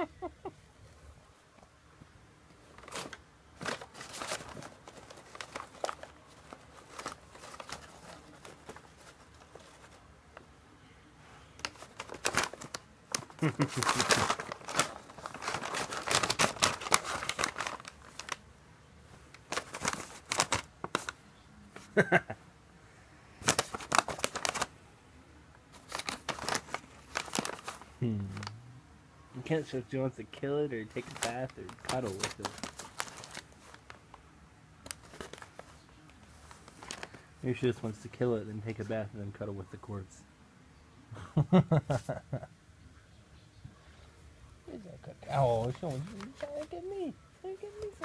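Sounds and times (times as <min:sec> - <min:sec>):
paper bag crinkling and rustling: 0:02.6 - 0:10.1, 0:11.6 - 0:18.5, 0:19.1 - 0:21.2, 0:23.4 - 0:24.7, 0:25.7 - 0:28.5, 0:29.5 - 0:34.2, 0:34.8 - 0:39.0, 0:45.3 - 0:48.0.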